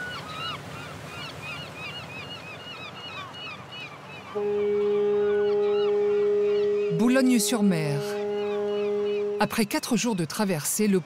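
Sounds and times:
birds chirping: 0:00.1 - 0:11.0
ship's horn blast: 0:04.4 - 0:10.2.

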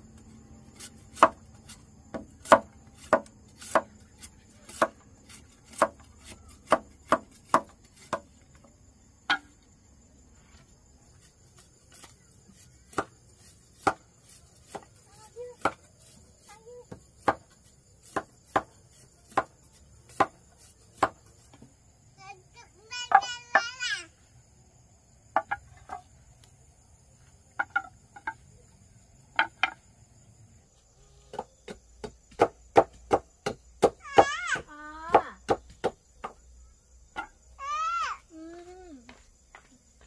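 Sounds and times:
blade chopping strokes: 0:00.6 - 0:08.3.

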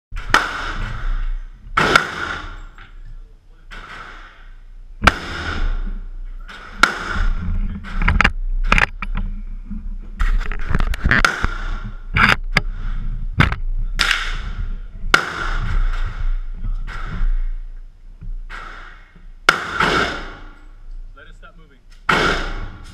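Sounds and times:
gunshots echoing indoors: 0:00.2 - 0:02.9, 0:03.7 - 0:08.0, 0:13.6 - 0:17.8, 0:18.4 - 0:20.8, 0:22.0 - 0:22.9.

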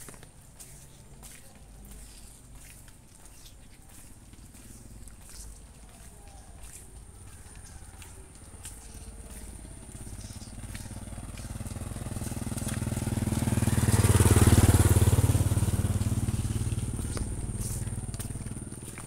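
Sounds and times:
motorcycle engine passing: 0:06.9 - 0:19.0.

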